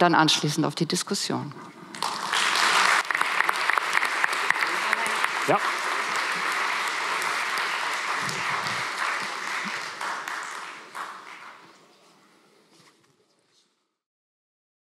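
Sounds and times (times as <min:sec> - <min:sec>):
audience applauding: 0:01.9 - 0:11.8.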